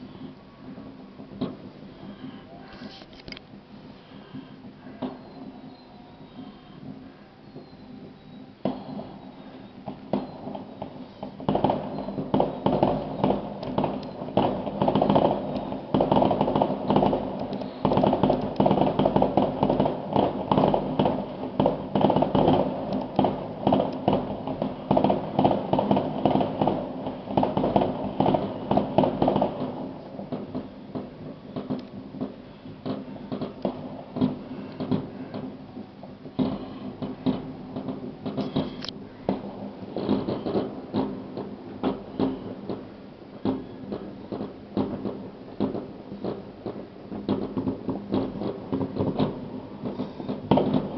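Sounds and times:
fireworks crackling: 0.0 - 50.9.

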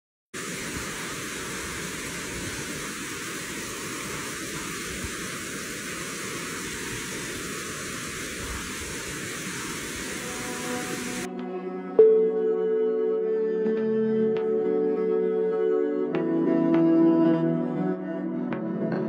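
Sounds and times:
stream water rushing over stones: 0.4 - 11.3.

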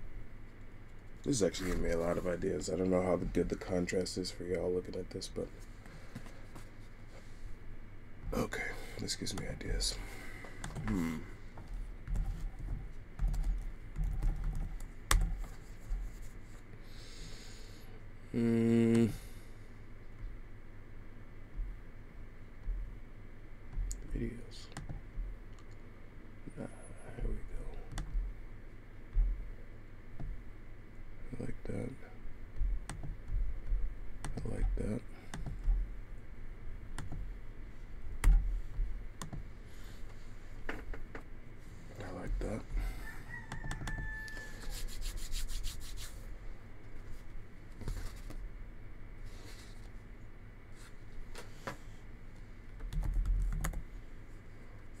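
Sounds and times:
low hum: 17.7 - 40.1.

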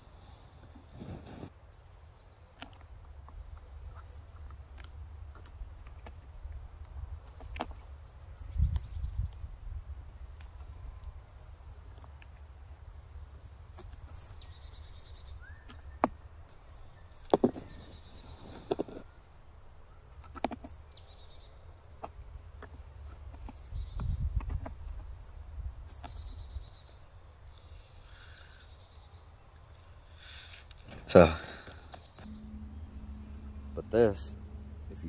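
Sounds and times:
small birds chirping: 0.0 - 9.5, 10.3 - 35.0
steady low rumble: 32.2 - 35.0.

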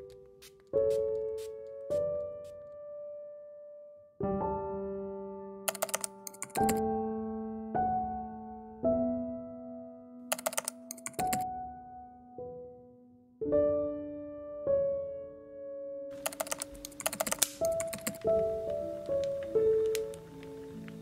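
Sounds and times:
slow piano chords: 0.0 - 21.0
keyboard typing clicks: 5.7 - 6.8, 10.3 - 11.5, 16.2 - 21.0.

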